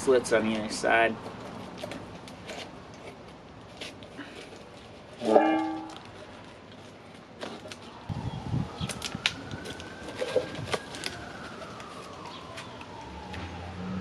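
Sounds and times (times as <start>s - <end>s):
pitched tone: 5.2s - 6.0s.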